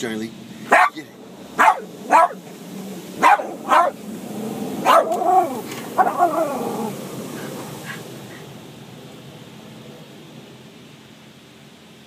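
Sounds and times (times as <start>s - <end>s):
dog barking: 0.7s - 1.0s, 1.6s - 2.4s, 3.2s - 4.0s, 4.8s - 6.6s.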